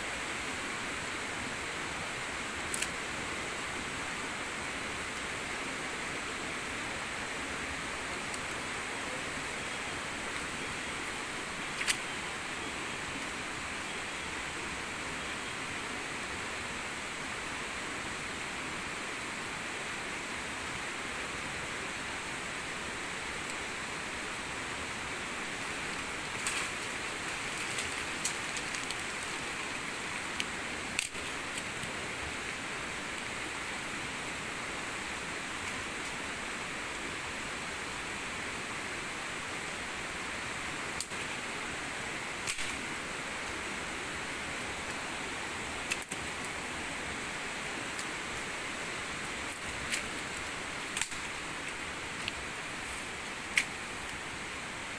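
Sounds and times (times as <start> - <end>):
rushing water: 0.0 - 54.9
sharp clicks and snaps: 2.7 - 2.9, 30.3 - 31.9, 42.4 - 42.8.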